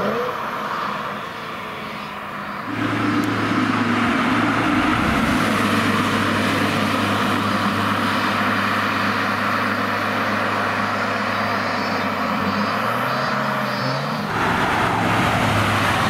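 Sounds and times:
sports car driving past: 1.9s - 16.0s.

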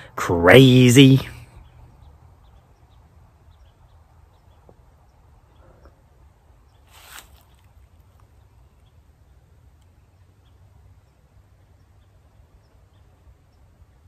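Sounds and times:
brief rustle: 6.9s - 8.3s.

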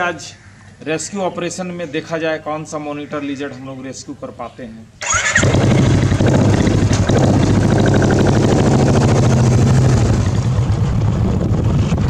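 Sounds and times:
motorcycle engine running: 5.0s - 12.0s.

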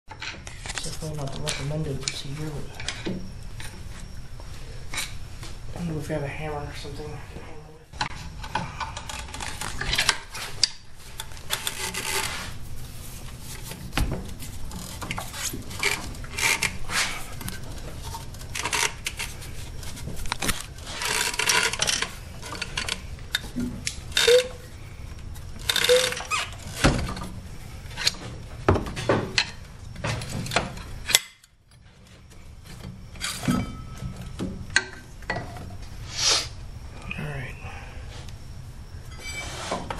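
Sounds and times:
hand tools clanking on metal: 33.2s - 35.6s.

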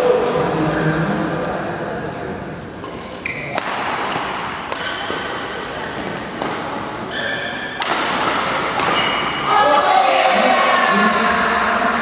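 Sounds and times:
rackets hitting shuttlecock: 2.8s - 10.6s
shoe squeaks: 3.2s - 3.6s, 7.0s - 7.8s, 8.4s - 9.4s.

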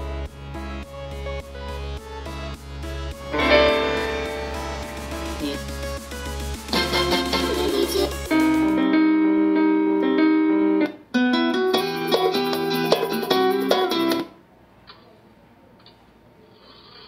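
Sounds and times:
pop music through a speaker: 0.0s - 8.9s
faint background noise: 12.8s - 17.0s.

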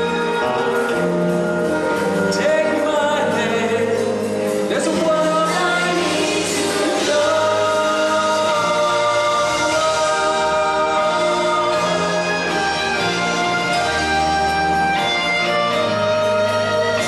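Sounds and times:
live band music: 0.0s - 17.0s
group singing long notes: 5.2s - 14.3s.

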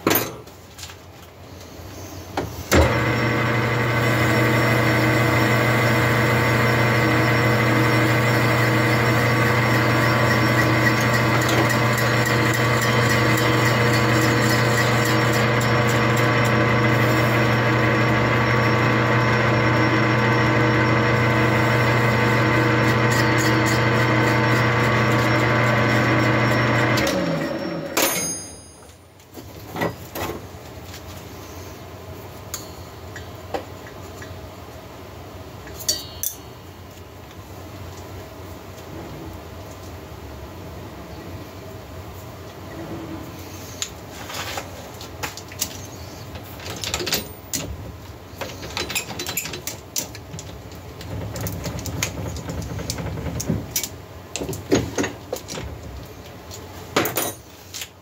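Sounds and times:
metal lathe humming: 2.7s - 27.8s
sharp clicks and knocks: 48.4s - 56.0s.

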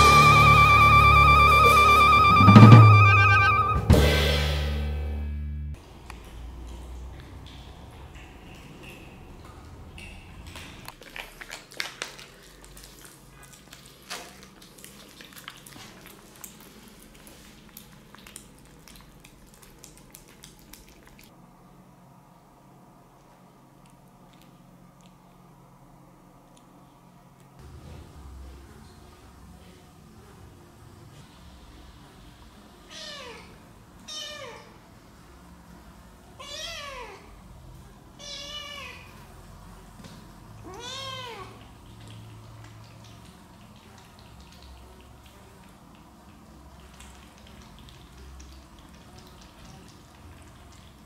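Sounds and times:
kittens chewing and lapping: 5.8s - 21.4s, 23.2s - 25.5s, 38.5s - 51.0s
kittens meowing: 38.2s - 39.2s.

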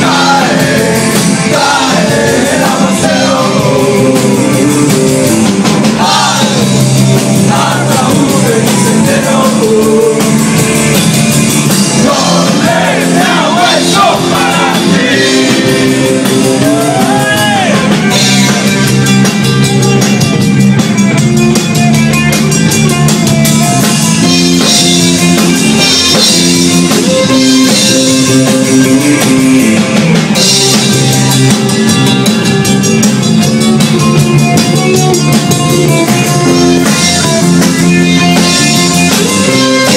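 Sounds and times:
person singing: 0.0s - 5.1s, 7.4s - 10.4s, 12.0s - 18.5s
drum kit: 0.0s - 39.9s
electric guitar: 0.0s - 39.9s.

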